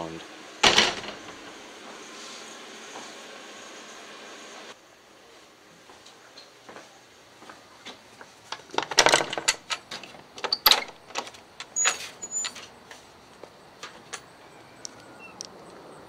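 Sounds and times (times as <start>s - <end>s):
screen door clicking and rattling: 0.6s - 1.6s, 8.5s - 12.8s.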